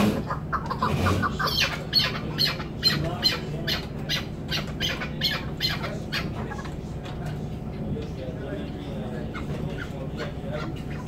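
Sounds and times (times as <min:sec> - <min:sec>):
partridge calling: 0:00.1 - 0:06.7.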